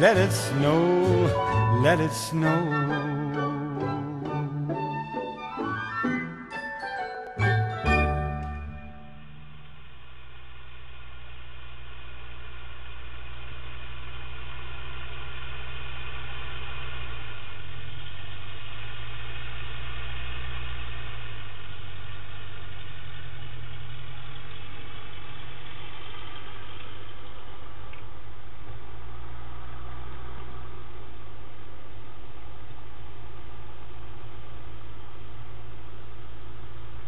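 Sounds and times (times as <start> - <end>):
tractor engine running: 0.0 - 37.0.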